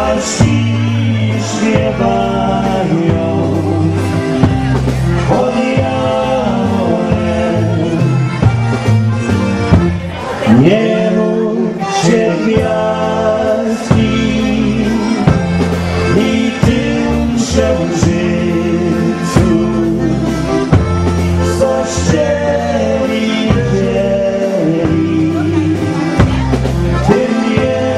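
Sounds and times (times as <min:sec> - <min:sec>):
bass line: 0:00.0 - 0:27.9
dance band playing a waltz: 0:00.0 - 0:27.9.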